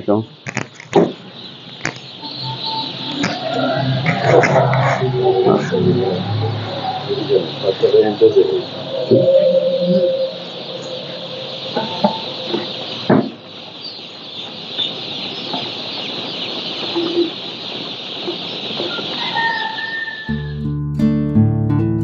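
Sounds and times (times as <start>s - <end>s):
chicks peeping: 0.0s - 20.5s
guitar music: 20.3s - 22.0s.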